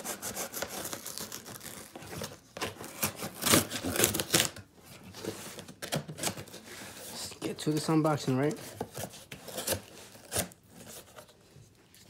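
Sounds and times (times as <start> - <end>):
knife slitting packing tape: 0.0 - 4.6
tape tearing: 0.0 - 4.6, 8.8 - 11.3.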